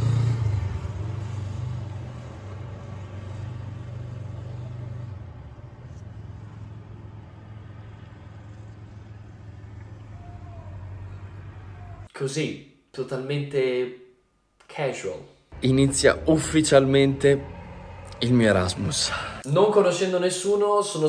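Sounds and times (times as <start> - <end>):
road traffic engine rumble: 0.0 - 12.1, 15.6 - 19.4.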